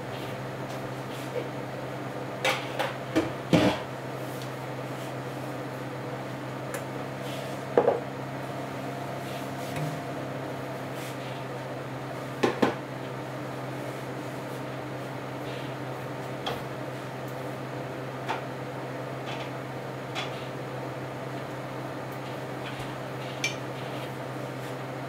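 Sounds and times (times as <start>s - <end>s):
low steady hum: 8.5s - 11.4s.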